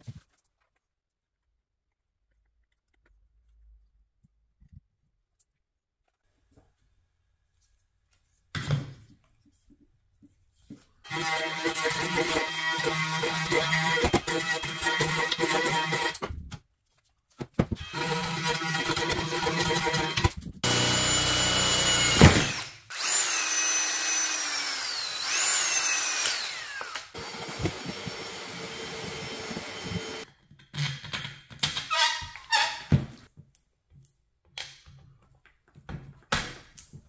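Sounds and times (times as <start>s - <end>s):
electric pole saw whining: 17.8s - 30.3s.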